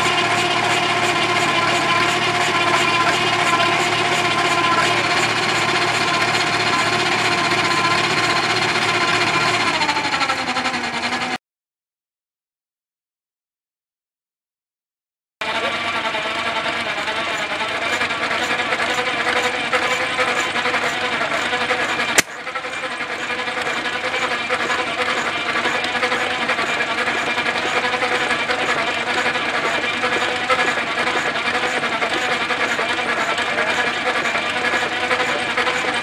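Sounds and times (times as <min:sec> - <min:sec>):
belt drive and engine clatter: 0:15.4 - 0:36.0
sharp click: 0:22.2 - 0:22.4.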